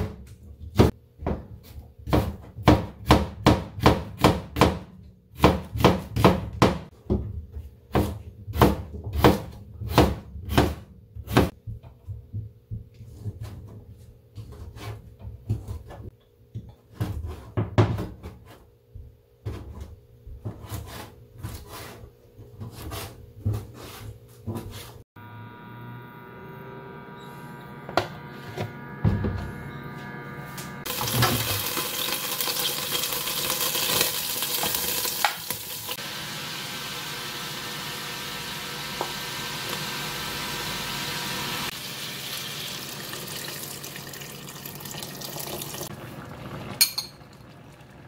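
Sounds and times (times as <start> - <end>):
knife chopping on plastic board: 2.0 - 6.9.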